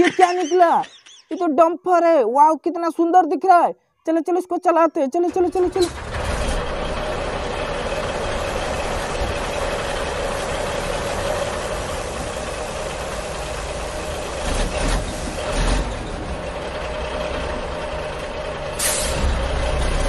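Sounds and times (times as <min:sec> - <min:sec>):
truck engine running: 0:05.6 - 0:20.0.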